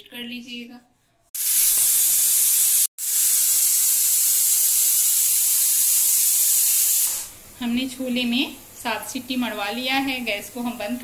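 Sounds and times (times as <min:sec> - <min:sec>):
pressure cooker steam hissing: 0:01.4 - 0:07.4.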